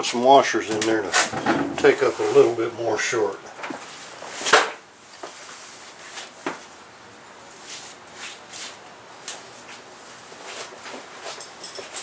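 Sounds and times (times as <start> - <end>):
handling rustles and knocks: 7.5 - 12.0.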